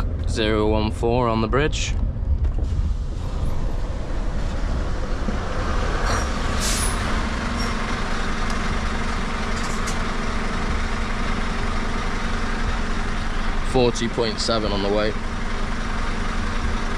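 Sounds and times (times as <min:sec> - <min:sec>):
diesel truck engine idling: 0:00.0 - 0:16.9
air brake hiss: 0:06.4 - 0:07.1.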